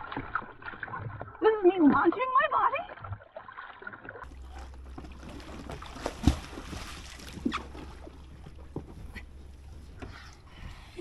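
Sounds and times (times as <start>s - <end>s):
water sloshing and trickling: 0.0s - 11.0s
low thump on hull: 4.3s - 10.9s.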